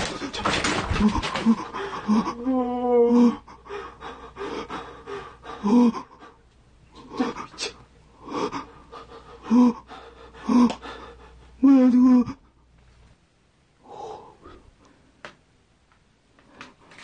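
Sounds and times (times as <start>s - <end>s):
person gasping and breathing: 0.1s - 6.4s, 7.0s - 12.5s
wavering voiced sound: 1.5s - 3.4s.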